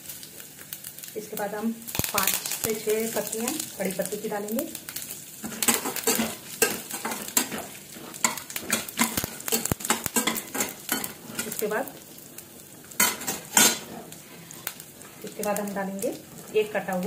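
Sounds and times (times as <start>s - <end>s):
frying sizzle: 0.0s - 17.0s
metal spatula scraping pan: 5.4s - 11.7s, 13.0s - 14.5s.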